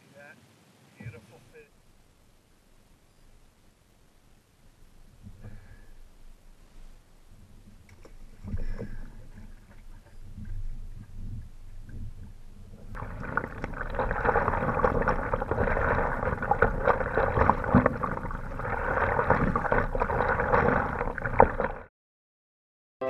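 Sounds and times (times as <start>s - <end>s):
water gurgling and splashing: 7.4s - 21.9s.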